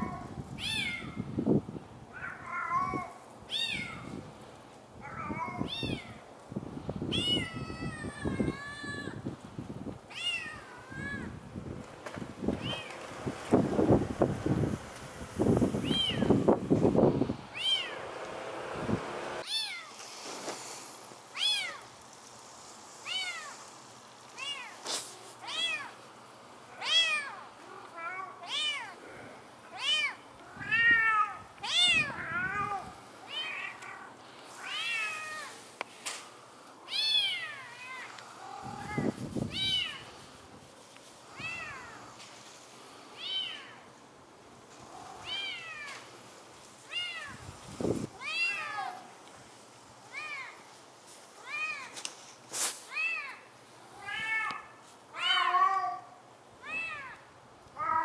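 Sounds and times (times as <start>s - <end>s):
cat meowing: 2.2s - 4.1s, 5.0s - 6.2s, 10.1s - 11.4s, 15.8s - 16.3s, 17.5s - 18.0s, 19.4s - 19.9s, 24.4s - 24.8s, 25.4s - 25.9s, 29.7s - 35.5s, 36.9s - 40.1s, 43.2s - 43.8s, 45.0s - 46.0s, 48.2s - 49.0s, 52.9s - 57.2s, 57.8s - 58.0s.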